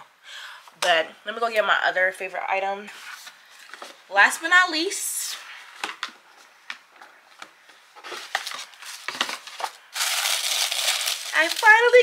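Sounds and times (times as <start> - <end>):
packaging rustling and crinkling: 8.0 - 12.0.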